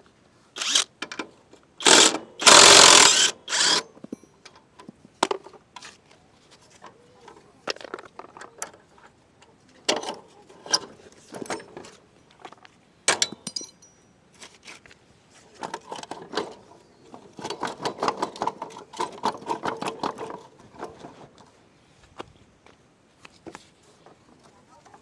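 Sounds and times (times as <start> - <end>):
metal tools clinking and knocking: 7.6 - 8.8, 13.1 - 14.1.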